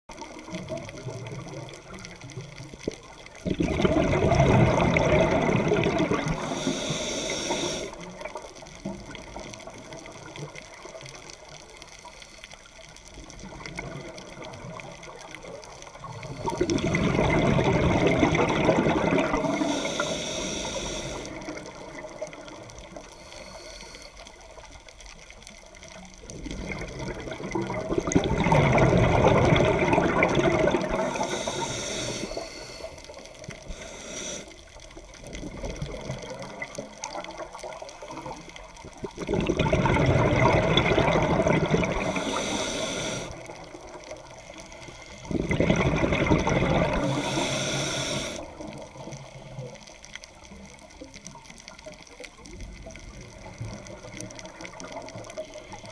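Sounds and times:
exhaled bubbles underwater: 0.1s - 55.9s
regulator in-breath hiss: 6.2s - 8.2s, 19.3s - 21.8s, 22.9s - 24.7s, 31.0s - 35.0s, 41.9s - 43.7s, 44.4s - 45.3s, 46.9s - 48.8s.

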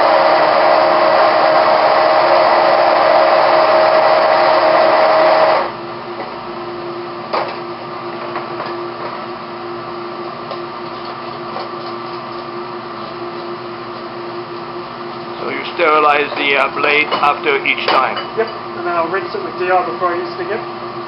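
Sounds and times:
stick blender motor running: 0.0s - 5.8s
steady background hum: 5.4s - 21.0s.

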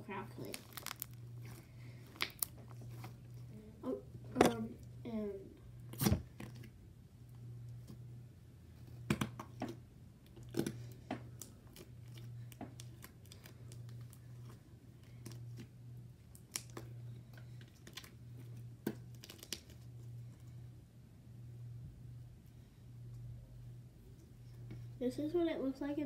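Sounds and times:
low hum: 0.0s - 26.0s
slime crackling and popping: 0.2s - 2.8s, 10.3s - 14.3s, 16.3s - 17.0s, 17.7s - 18.2s, 18.8s - 19.9s.

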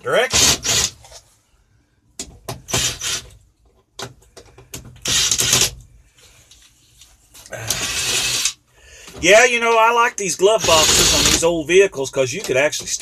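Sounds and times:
cordless drill running: 0.3s - 1.0s, 2.7s - 3.3s, 5.0s - 5.8s, 7.7s - 8.6s, 10.6s - 11.4s.

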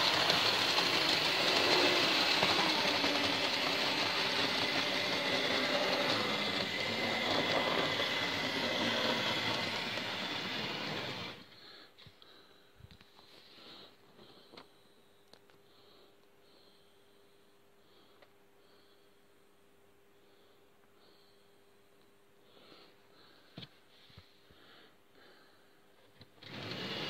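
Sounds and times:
wheels clattering on rails: 0.0s - 11.3s
model train motors whining: 0.0s - 11.6s, 26.4s - 27.0s.

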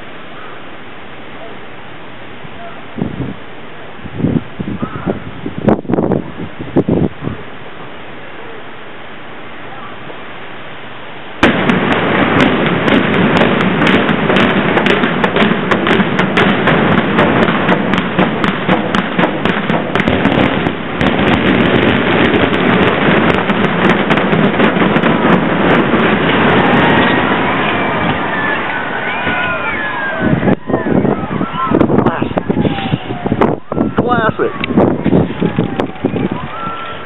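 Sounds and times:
heavy rumble of collapsing building: 11.3s - 37.0s
demolition charges cracking: 11.4s - 33.6s.

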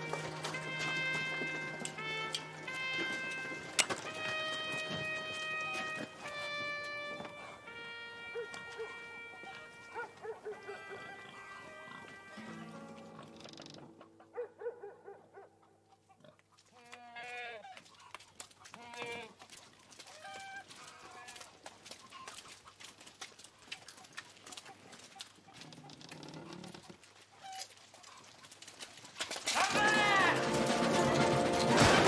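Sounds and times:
quick footsteps running: 0.0s - 7.4s
goats bleating: 18.7s - 19.4s, 29.5s - 31.9s.

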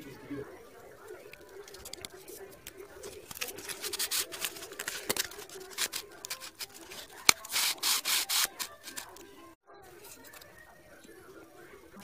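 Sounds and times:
cardboard rubbing and scraping: 3.0s - 9.2s.

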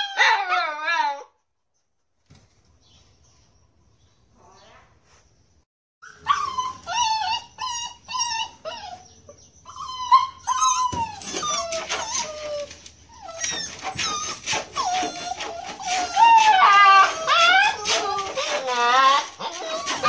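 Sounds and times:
puppies whining and whimpering: 6.0s - 20.0s.

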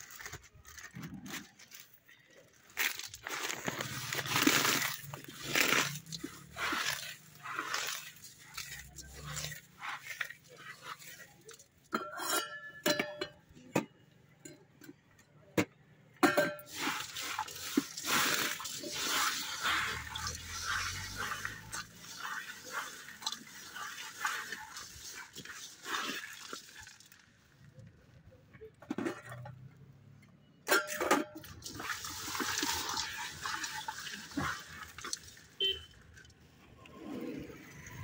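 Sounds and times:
puffed rice rustling in metal bowl: 0.0s - 12.0s, 16.6s - 27.2s, 31.5s - 35.7s.

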